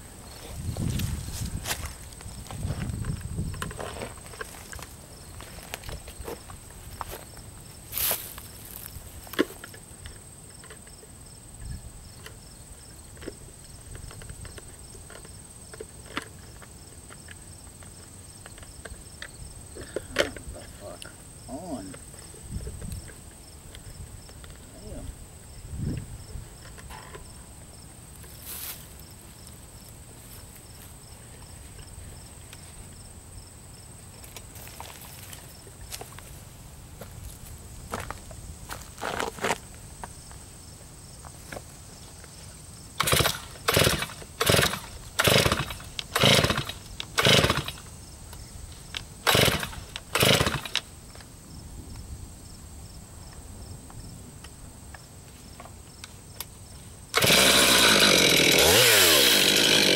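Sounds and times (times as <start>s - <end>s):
insect chirping: 0.0s - 59.6s
faint outdoor background: 0.0s - 59.9s
scuffing footsteps: 0.3s - 9.6s, 34.5s - 40.2s.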